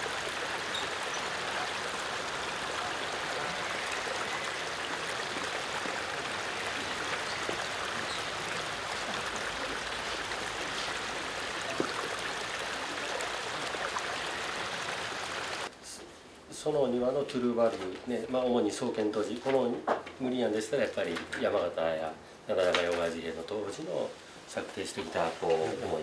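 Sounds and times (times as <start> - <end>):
stream water rushing: 0.0 - 15.7.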